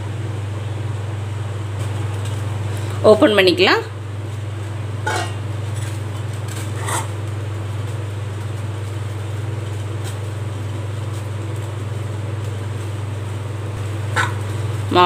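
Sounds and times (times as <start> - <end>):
steady low hum: 0.0 - 15.0
spoon scraping dough in a pan: 5.1 - 7.2.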